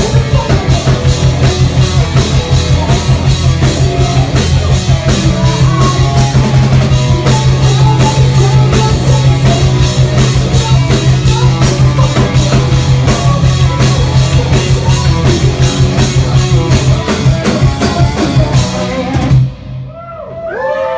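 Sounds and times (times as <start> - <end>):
live rock band playing: 0.0 - 20.4
woman singing: 5.2 - 16.4.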